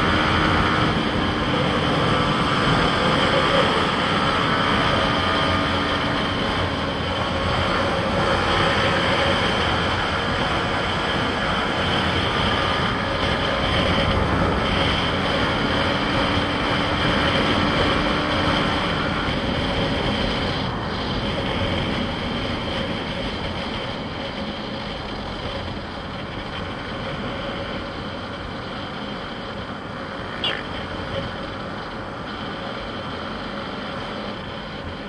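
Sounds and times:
motorcycle engine running: 0.0s - 35.0s
wind and road noise: 0.0s - 35.0s
brief sharp chirp: 30.4s - 30.7s.

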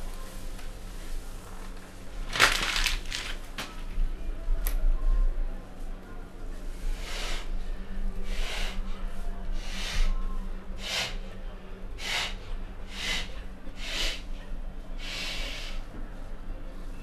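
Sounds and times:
steady low hum: 0.0s - 17.0s
person breathing hard: 8.2s - 8.8s, 9.6s - 10.2s, 10.8s - 11.3s, 12.0s - 14.3s, 15.0s - 15.9s.

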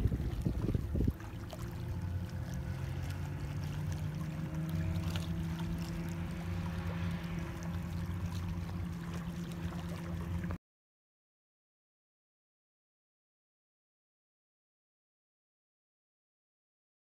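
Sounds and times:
engine running with low drone: 0.0s - 10.6s.

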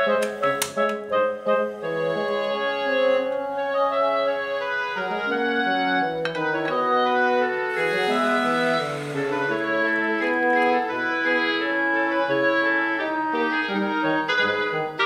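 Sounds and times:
slow instrumental chords: 6.1s - 12.0s.

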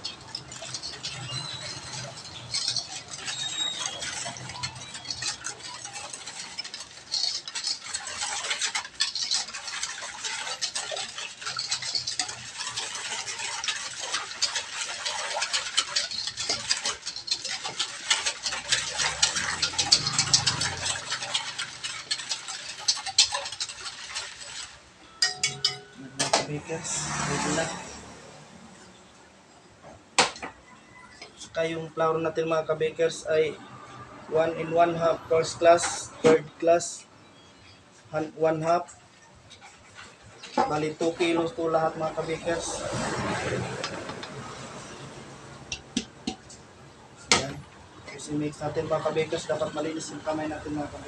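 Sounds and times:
fingers swishing through liquid: 0.0s - 24.8s.

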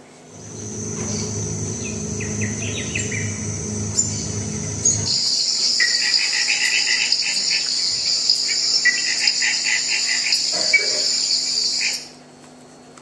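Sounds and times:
high insect buzz: 0.3s - 12.0s.

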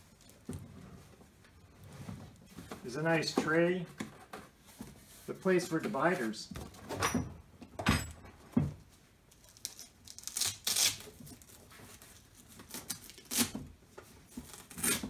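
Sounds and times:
rustling handling: 0.0s - 6.4s
velcro ripping apart: 9.3s - 13.6s, 14.5s - 15.0s.

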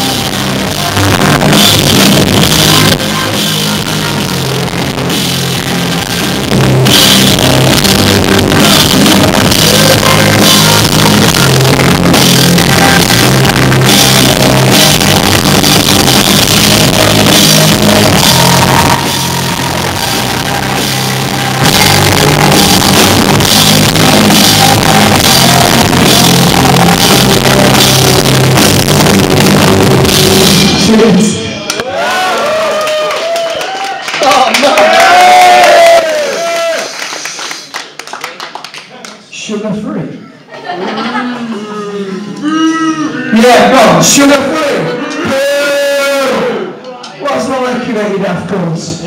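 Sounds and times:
live rock band playing: 0.0s - 31.8s.

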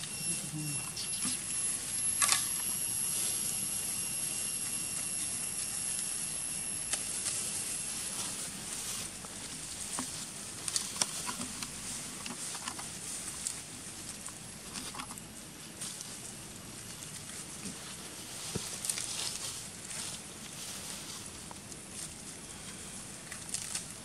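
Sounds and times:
steady hiss: 0.0s - 14.7s
faint high whine: 0.0s - 24.0s
monkeys rustling in dry leaves: 0.0s - 24.0s.

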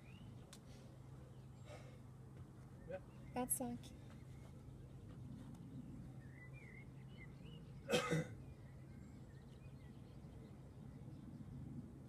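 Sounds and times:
person coughing: 7.9s - 8.3s.

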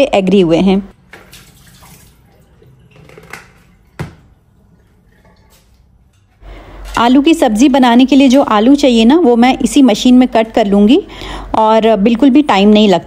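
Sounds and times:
water dripping from colander: 1.1s - 6.2s.

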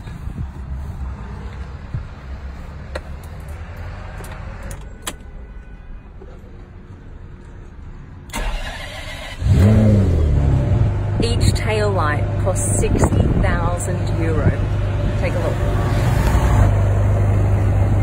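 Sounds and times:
starter motor cranking engine: 8.3s - 9.9s.

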